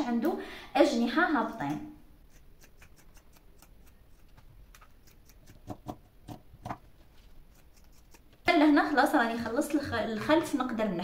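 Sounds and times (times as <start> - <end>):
scissors snipping fabric: 1.6 - 6.8, 7.5 - 8.7.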